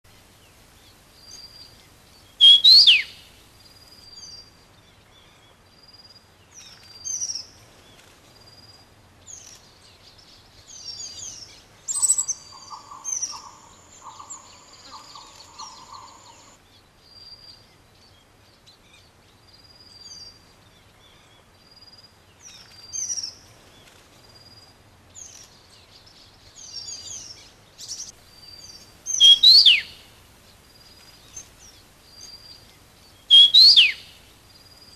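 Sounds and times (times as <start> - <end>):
birds chirping: 0.0 - 4.4, 10.7 - 16.6, 26.5 - 34.9
loud downward-sweeping bird calls: 2.4 - 3.3, 11.9 - 16.6, 28.5 - 30.2, 33.2 - 34.3.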